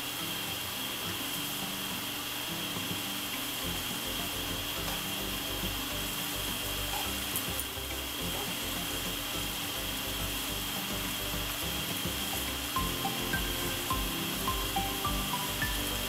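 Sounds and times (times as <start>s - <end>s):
background music: 0.0s - 16.0s
noodles sizzling in frying pan: 0.0s - 16.0s.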